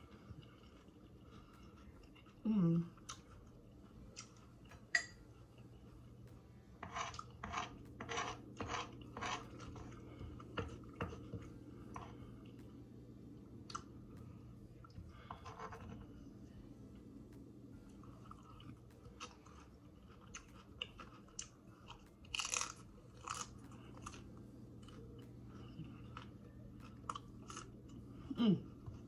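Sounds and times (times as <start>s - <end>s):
chewing crunchy taco: 0.1s - 5.9s, 17.9s - 28.1s
metal spoon scraping cutting board: 6.8s - 9.8s.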